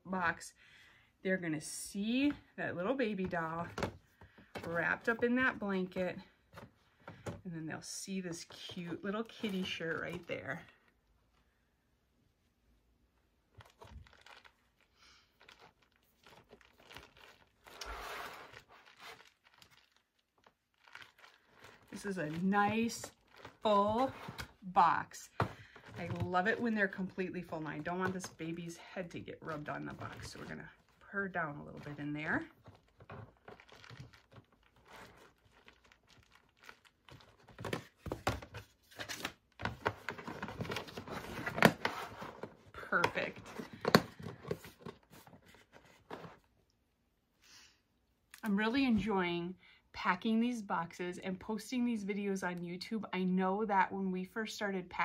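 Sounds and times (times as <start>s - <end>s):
plastic rustling and crinkling: 8.3s - 11.5s, 13.4s - 46.6s.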